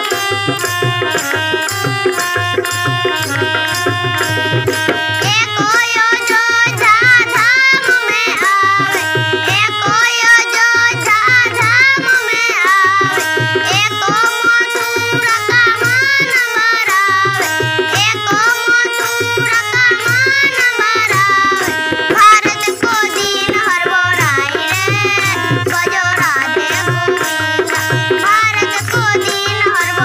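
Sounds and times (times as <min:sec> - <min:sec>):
girl singing: 0:00.0 - 0:30.0
harmonium chords: 0:00.0 - 0:30.0.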